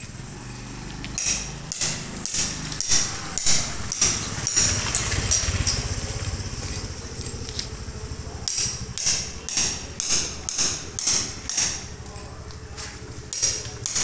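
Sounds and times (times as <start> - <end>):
motor scooter engine: 0.0 - 14.0
footsteps on gritty concrete: 6.1 - 7.9, 11.9 - 14.0.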